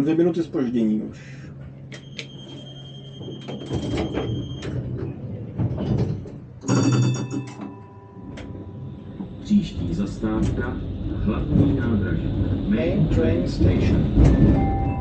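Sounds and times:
tram running rumble: 0.0 - 15.0
announcement chime ringing: 6.7 - 9.0, 14.5 - 15.0.

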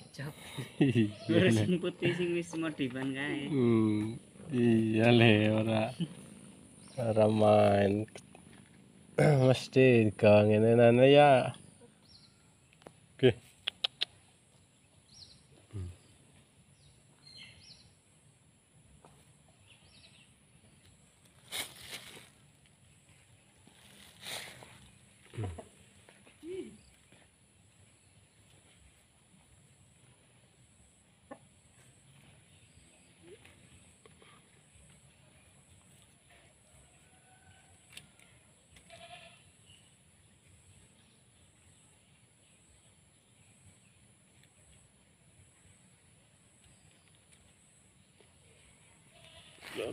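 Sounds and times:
small birds chirping: 0.0 - 36.5, 37.8 - 49.9.

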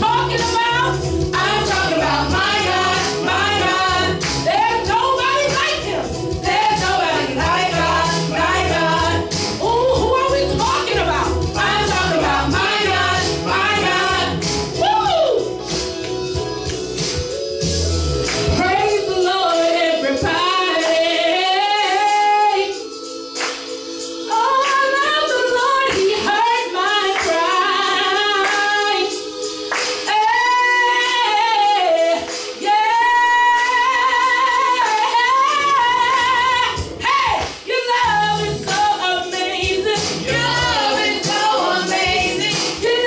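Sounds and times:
woman singing gospel: 0.0 - 15.5, 18.4 - 43.0
keyboard chords: 0.0 - 25.8.

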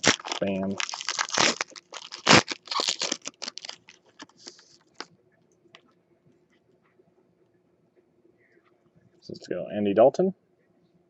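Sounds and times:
foil wrapper tearing and crinkling: 0.0 - 5.1.

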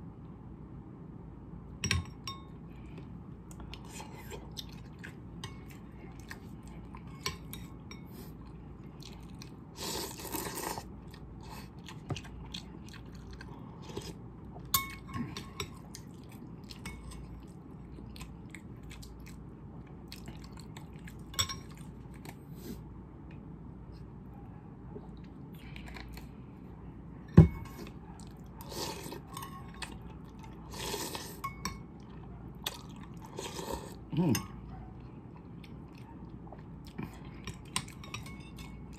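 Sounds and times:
chewing noodles: 3.5 - 22.8, 27.8 - 31.4, 32.0 - 38.1
metal spoon clinking on bowl: 14.7 - 15.8, 21.3 - 21.8, 37.5 - 38.9.

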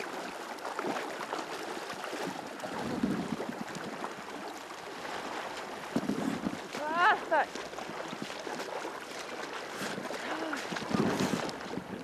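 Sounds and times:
water sloshing and splashing: 0.0 - 12.0.

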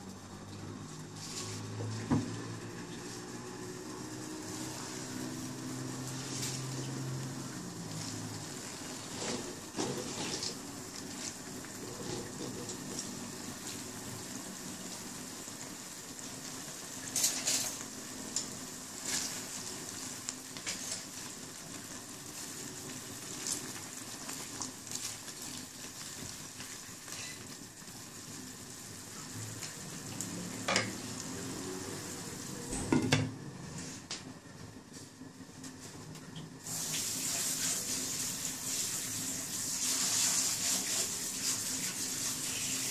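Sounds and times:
steady hiss: 36.6 - 42.9.

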